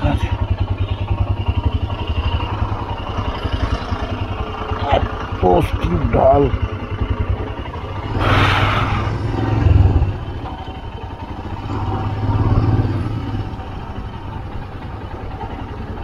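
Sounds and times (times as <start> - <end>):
motorcycle engine pulling hard: 0.0 - 16.0
burst of hiss: 8.2 - 9.1.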